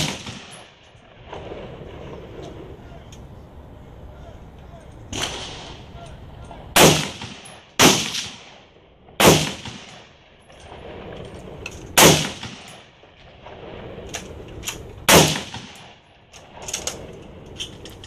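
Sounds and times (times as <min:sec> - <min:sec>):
rifle shots with echo: 0:00.0 - 0:01.6, 0:05.1 - 0:06.0, 0:06.7 - 0:14.0, 0:15.0 - 0:16.6.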